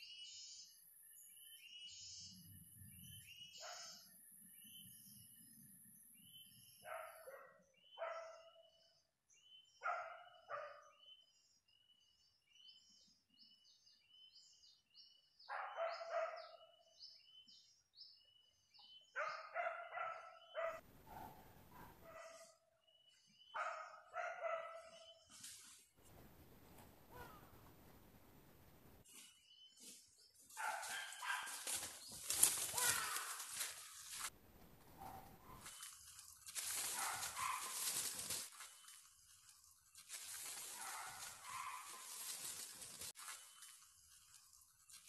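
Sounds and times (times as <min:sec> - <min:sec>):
dogs barking: 0:03.6 - 0:04.0, 0:06.8 - 0:08.6, 0:09.8 - 0:10.9, 0:15.5 - 0:16.7, 0:19.2 - 0:22.6, 0:23.6 - 0:25.2, 0:30.5 - 0:31.9, 0:34.9 - 0:35.7, 0:36.8 - 0:38.0, 0:40.6 - 0:42.5.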